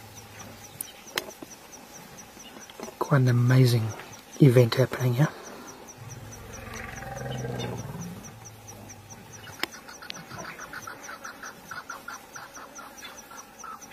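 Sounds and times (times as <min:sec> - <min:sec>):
faint high insect ticking: 0:00.0 - 0:13.9
deep animal call: 0:05.4 - 0:12.0.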